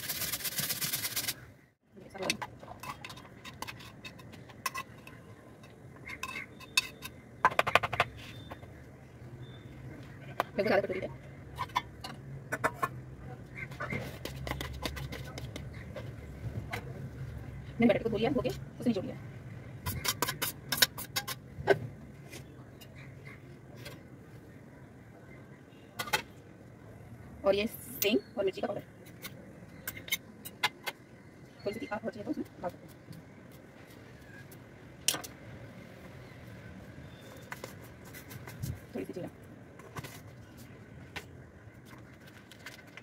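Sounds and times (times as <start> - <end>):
metal spoon scraping metal pot: 2.2 - 7.2, 19.8 - 21.4.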